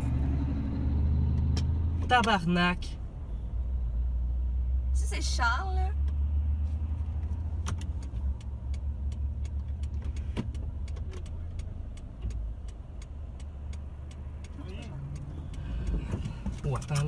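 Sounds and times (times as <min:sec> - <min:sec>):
sharp clicks: 0:07.6 - 0:16.0.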